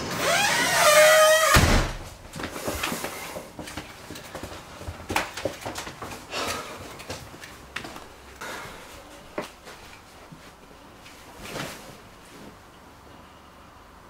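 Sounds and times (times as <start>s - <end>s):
door shutting with heavy thud: 1.4s - 2.2s.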